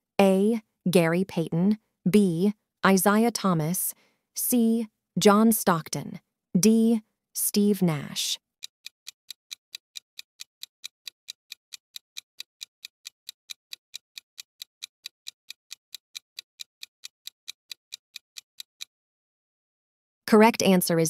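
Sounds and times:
sharp clock ticks: 6.6s - 18.9s.

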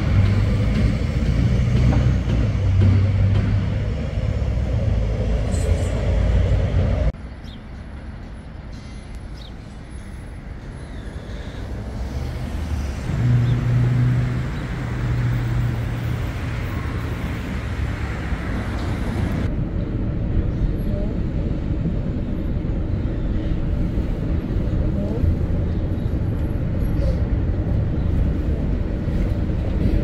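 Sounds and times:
road traffic passing: 0.0s - 30.0s
steady low rumble: 12.4s - 30.0s.

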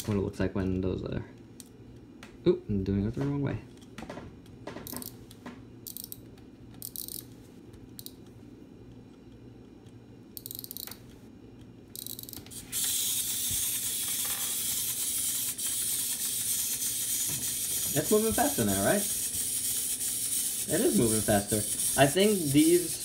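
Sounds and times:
toy mechanism whirring: 5.8s - 6.2s, 6.8s - 7.3s, 10.4s - 11.0s, 11.9s - 23.0s.

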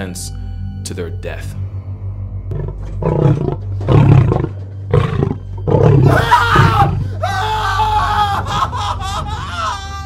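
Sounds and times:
lion roaring and snarling: 2.5s - 7.1s
person screaming: 6.0s - 8.5s.

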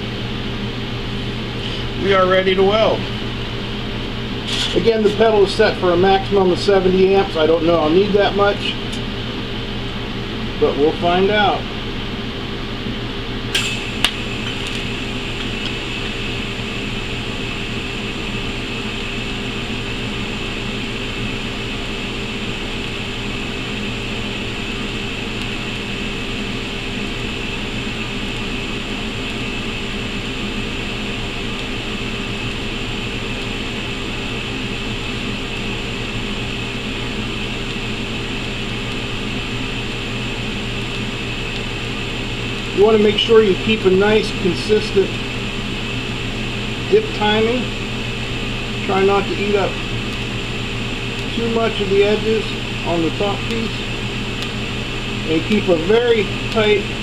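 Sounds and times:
welding arc hiss: 13.5s - 57.0s.

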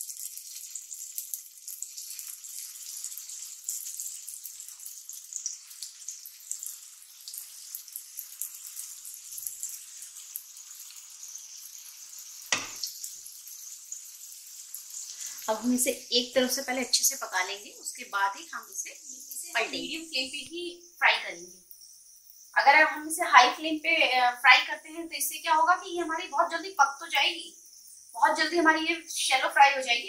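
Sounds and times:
dough frying in oil sizzling: 0.0s - 30.0s
sharp knock: 12.5s - 12.8s.

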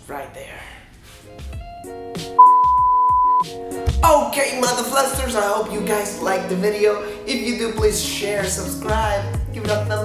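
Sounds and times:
background music with chords and beat: 1.2s - 10.0s
loud high steady beep: 2.4s - 3.4s.

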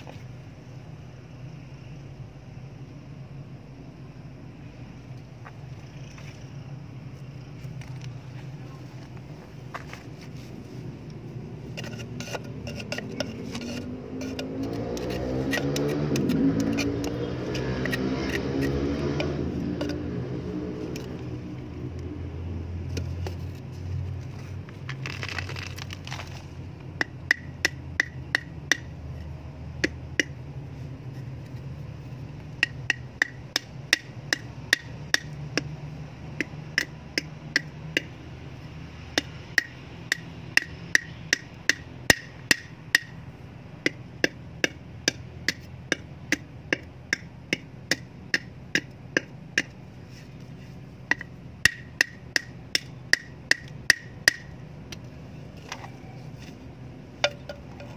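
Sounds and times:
metal blade knocking terracotta pot: 57.2s - 57.9s.

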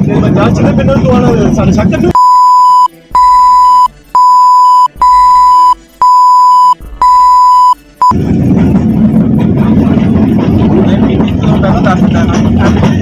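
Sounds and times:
train carriage rumbling: 0.0s - 2.1s, 8.2s - 13.0s
high-pitched bleep tone: 2.1s - 8.2s.

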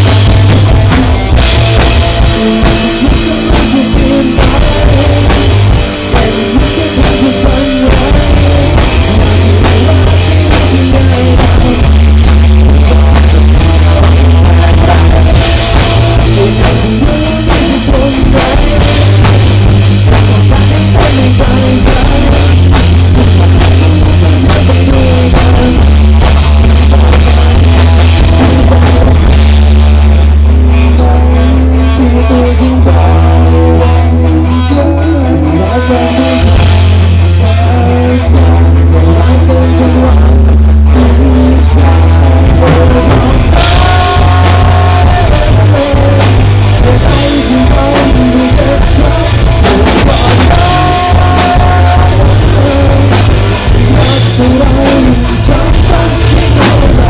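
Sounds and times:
rock band playing: 0.0s - 57.0s.

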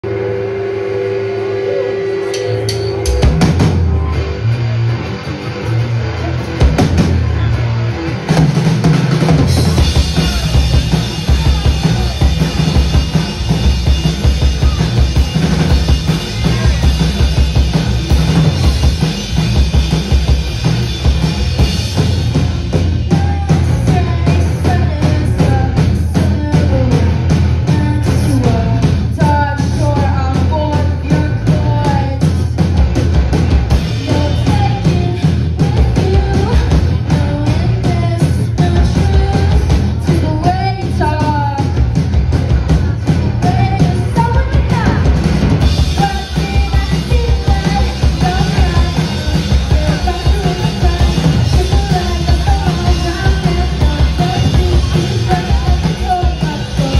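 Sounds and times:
rock band playing loudly: 0.0s - 56.9s
woman singing: 23.1s - 32.5s, 34.0s - 41.8s, 43.4s - 45.1s, 45.8s - 56.9s.

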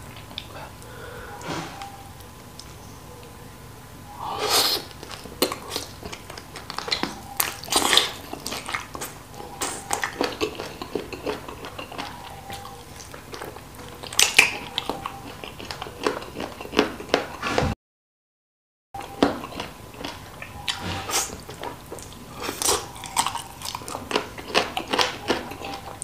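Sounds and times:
wet chewing and biting: 4.8s - 17.7s, 19.0s - 26.0s.

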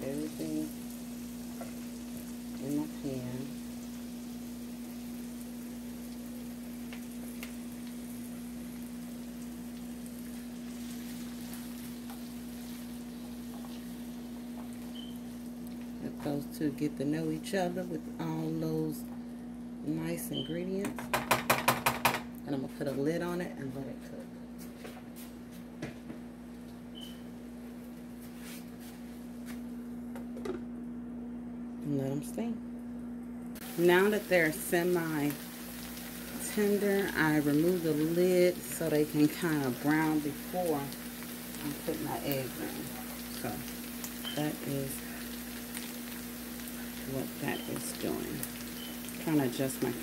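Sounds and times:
vegetables sizzling in a skillet: 0.0s - 19.0s, 33.6s - 50.0s.

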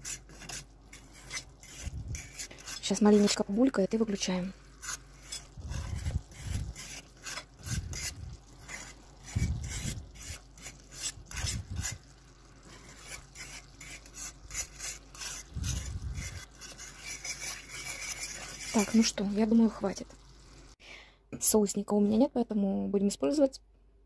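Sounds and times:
sauce simmering: 0.0s - 3.4s, 4.2s - 20.8s
metal fork scraping a frying pan: 0.0s - 3.6s, 4.7s - 19.2s.

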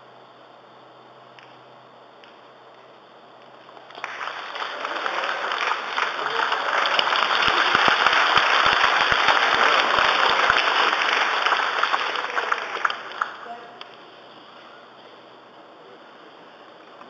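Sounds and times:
large audience applauding: 3.6s - 13.9s.

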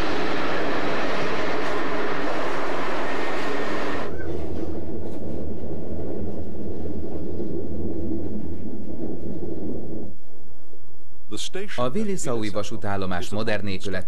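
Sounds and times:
train rushing past: 0.0s - 10.6s
rumble inside moving train: 0.0s - 10.8s.

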